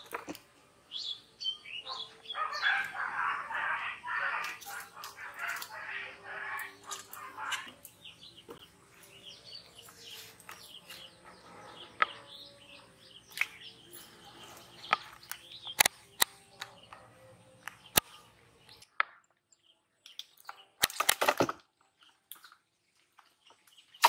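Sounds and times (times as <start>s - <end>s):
small birds chirping: 0.0s - 24.0s
sharp clicks: 14.9s - 17.0s, 17.6s - 18.1s.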